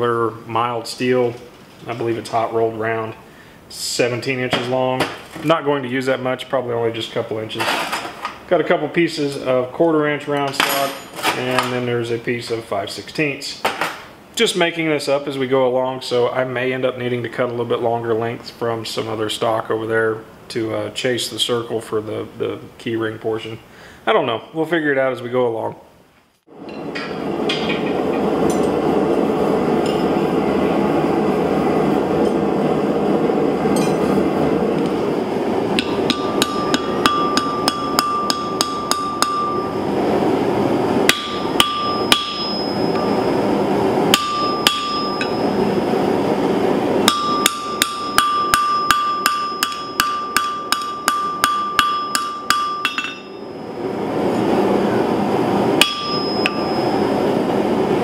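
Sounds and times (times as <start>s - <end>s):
gas forge burner rushing: 26.5s - 58.0s
hammer striking hot steel on anvil: 26.7s - 28.8s, 33.8s - 34.2s, 35.7s - 39.8s, 41.0s - 43.3s, 44.1s - 45.6s, 47.0s - 53.6s, 55.8s - 57.1s.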